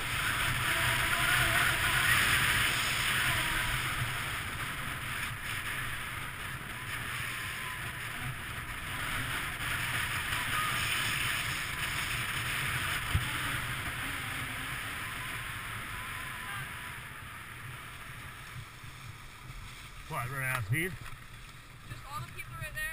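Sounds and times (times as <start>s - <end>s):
wind on microphone: 0.0s - 19.6s
skis sliding over snow: 0.0s - 22.9s.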